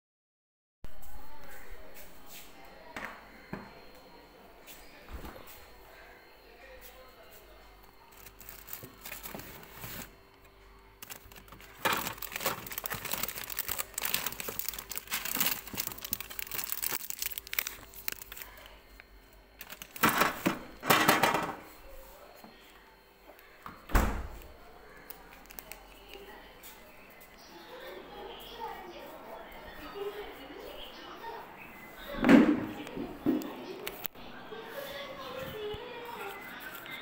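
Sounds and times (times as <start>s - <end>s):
plastic wrappers crinkling: 8.1s - 10.2s, 11.0s - 20.4s, 24.9s - 26.4s.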